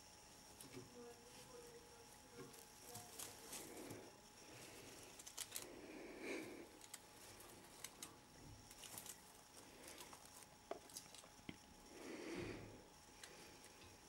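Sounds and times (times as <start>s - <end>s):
faint rustling: 0.6s - 11.3s.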